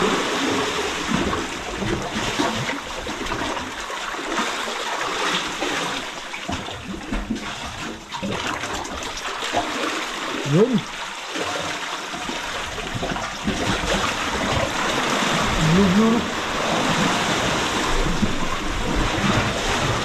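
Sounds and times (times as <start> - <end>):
water lapping around boat: 0.0 - 20.0.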